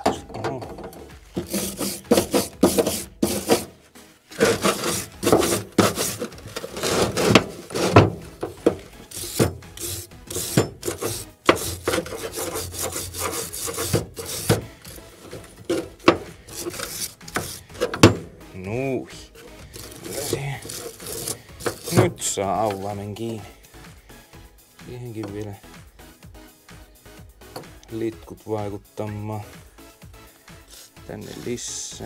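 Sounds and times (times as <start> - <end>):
wire brush scrubbing metal chain: 1.3 - 3.7, 4.3 - 18.0, 19.4 - 23.0.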